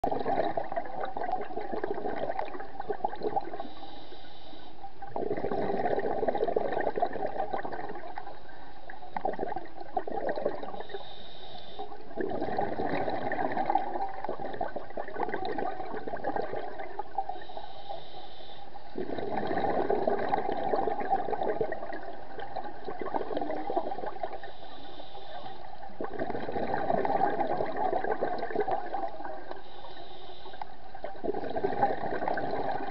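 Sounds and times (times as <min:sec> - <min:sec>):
exhaled bubbles gurgling: 0:00.0 - 0:04.1, 0:04.8 - 0:18.0, 0:18.6 - 0:32.9
regulator inhale hiss: 0:03.6 - 0:04.8, 0:10.8 - 0:12.0, 0:17.3 - 0:18.8, 0:24.4 - 0:25.7, 0:29.6 - 0:30.8.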